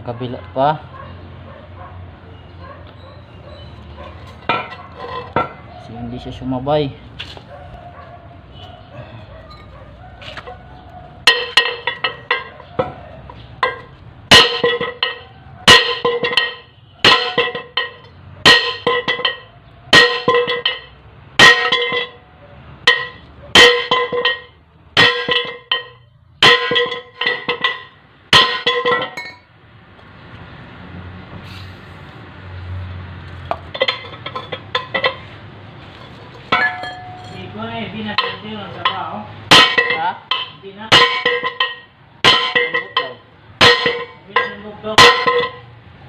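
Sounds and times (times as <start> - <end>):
hammer striking steel: 11.2 - 13.0, 13.6 - 22.2, 22.8 - 29.5, 36.4 - 45.7.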